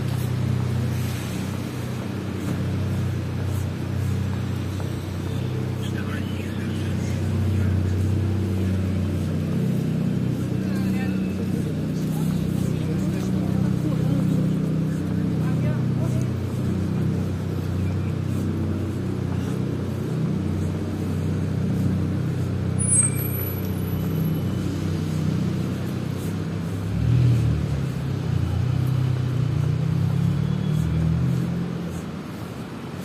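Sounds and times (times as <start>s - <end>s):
low rumble of cars: 0.0s - 33.0s
short high squeak: 22.8s - 23.6s.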